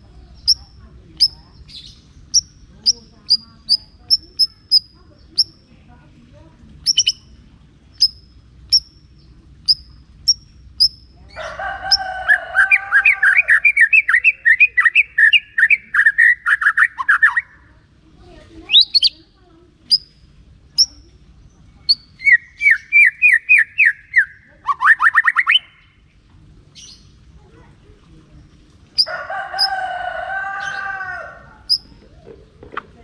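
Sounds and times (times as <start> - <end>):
bird warbling song: 0.0 - 5.7, 6.8 - 17.6, 18.6 - 27.2, 28.9 - 29.8, 30.5 - 33.0
bird calling with sharp notes: 6.8 - 17.6, 21.8 - 26.1.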